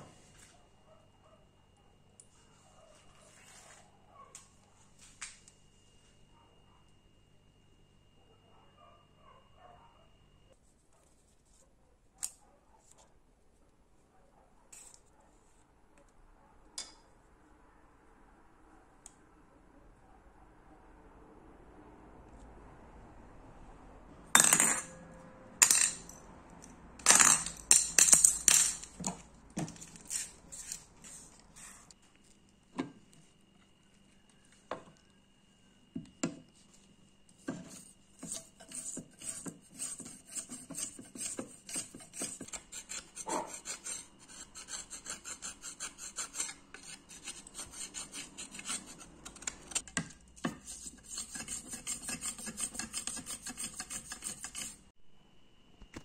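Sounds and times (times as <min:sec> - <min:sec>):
metal parts clanking in metal bowl: 0:25.6 - 0:26.2, 0:27.0 - 0:29.2
toothbrush scrubbing metal: 0:37.4 - 0:54.9.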